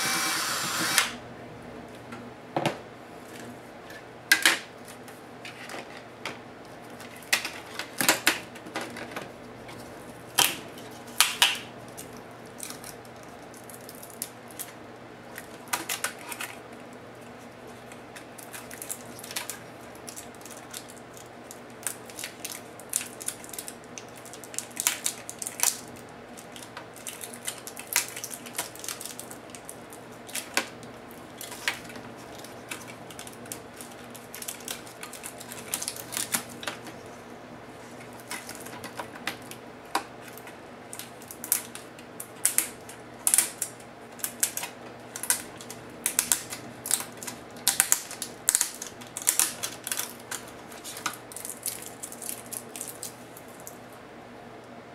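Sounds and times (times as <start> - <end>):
adhesive tape peeling and crinkling: 18.2 - 30.7, 31.4 - 36.7, 40.2 - 53.8.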